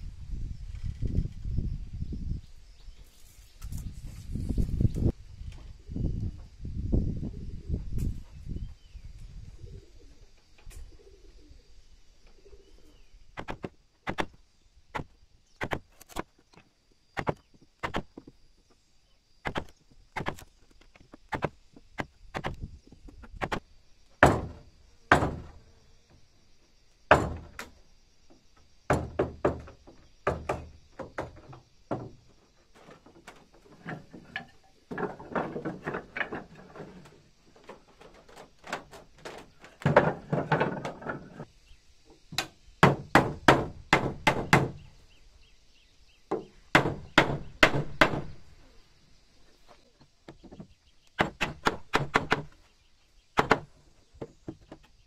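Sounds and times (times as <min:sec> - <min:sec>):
wooden knocks and thuds: 0:13.4 - 0:16.6, 0:17.2 - 0:18.4, 0:19.4 - 0:23.6, 0:24.2 - 0:25.6, 0:27.1 - 0:27.7, 0:28.3 - 0:41.5, 0:42.2 - 0:44.8, 0:46.3 - 0:48.4, 0:50.0 - 0:52.6, 0:53.4 - 0:55.0
clatter of wooden strips: 0:31.0 - 0:41.5.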